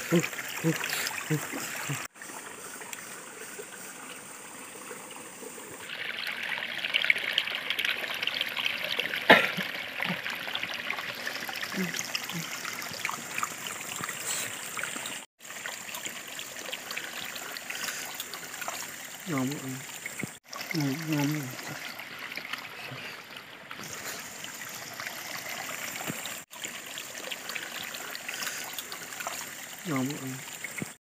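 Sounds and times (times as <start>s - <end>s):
running water trickling: 0.0s - 31.0s.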